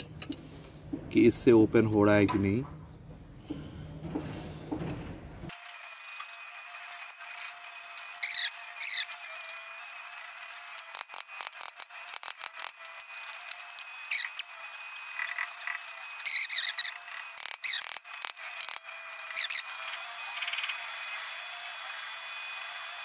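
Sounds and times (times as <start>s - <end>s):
metal squeaking under strain: 16.2s - 18.0s.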